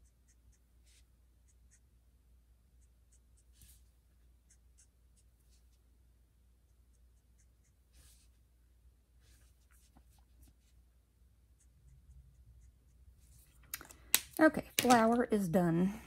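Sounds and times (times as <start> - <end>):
marker nib ticks and scratches: 0.0 - 1.9, 2.8 - 5.7, 11.5 - 15.2.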